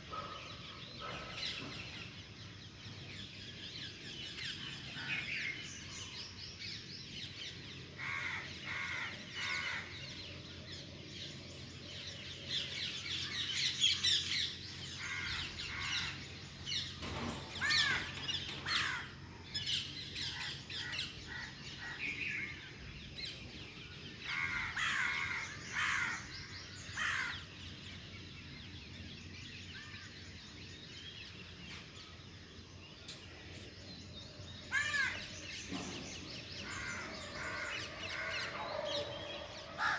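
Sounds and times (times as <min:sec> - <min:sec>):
birds chirping and trilling: 0:00.0 - 0:39.9
crows cawing: 0:08.0 - 0:09.9, 0:15.0 - 0:16.2, 0:17.6 - 0:19.2, 0:24.3 - 0:27.5, 0:34.7 - 0:35.3, 0:36.6 - 0:39.1.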